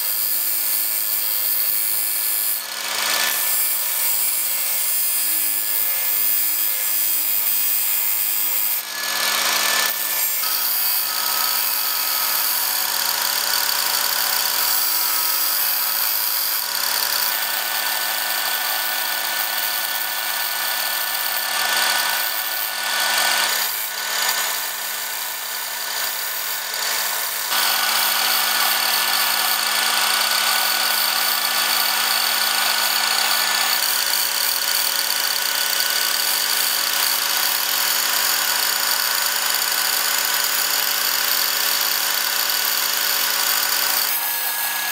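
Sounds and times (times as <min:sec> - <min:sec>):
disc grinder grinding steel blade: 0:00.0 - 0:25.2, 0:26.0 - 0:34.9, 0:43.2 - 0:44.9.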